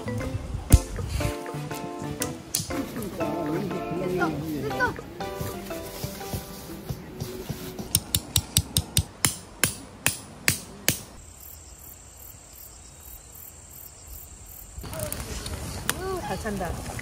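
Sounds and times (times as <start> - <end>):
hammer striking tent peg: 7.8 - 11.2.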